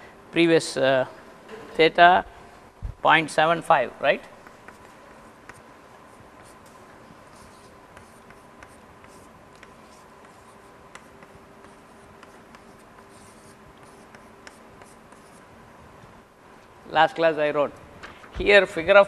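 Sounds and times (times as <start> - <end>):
faint steady hum: 0.0 - 19.0
chalk tapping and scratching: 4.4 - 15.5.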